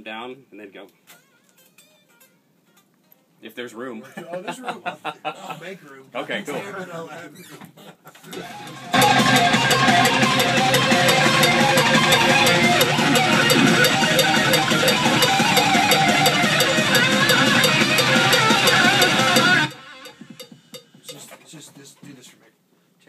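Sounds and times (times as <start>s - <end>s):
metalcore band with electric guitar: 8.4s - 20.2s
cymbal-like ticks: 8.4s - 21.2s.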